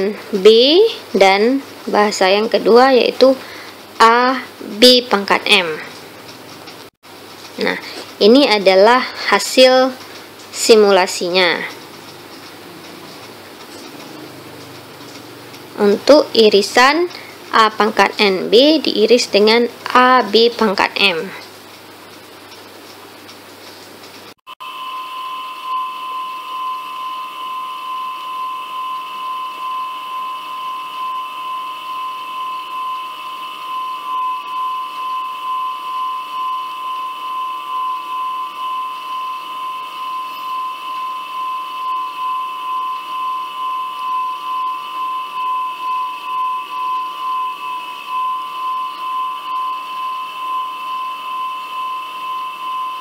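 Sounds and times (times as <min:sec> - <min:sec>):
high-pitched whistling whine: 0:24.5 - 0:53.0.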